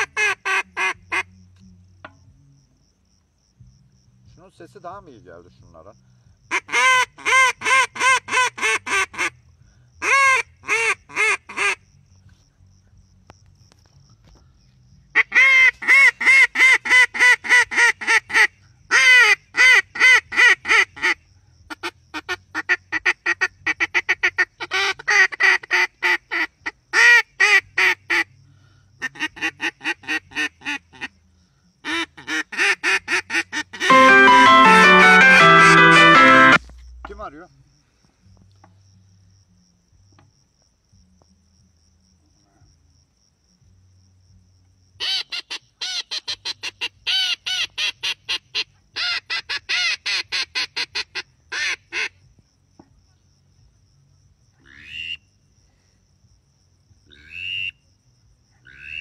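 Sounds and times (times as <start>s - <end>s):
duck call quacks: 6.5s - 9.3s, 32.6s - 36.6s
guitar music: 33.9s - 36.6s.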